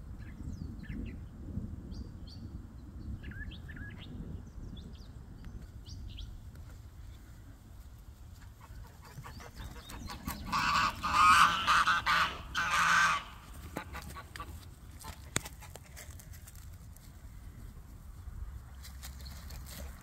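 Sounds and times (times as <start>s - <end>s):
geese honking: 8.8s - 14.6s.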